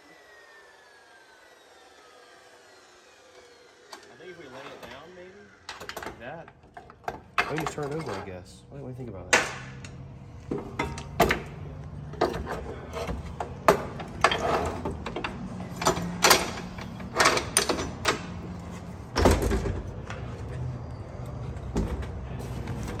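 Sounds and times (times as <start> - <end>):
metal tools knocking and clanking: 5.7 - 8.4, 9.3 - 18.5.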